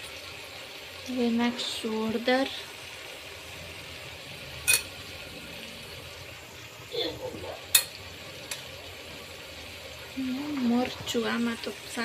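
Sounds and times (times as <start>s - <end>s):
cooking pot hissing: 0.0s - 12.0s
metal utensil clinking on pot: 4.6s - 5.0s, 7.7s - 8.6s.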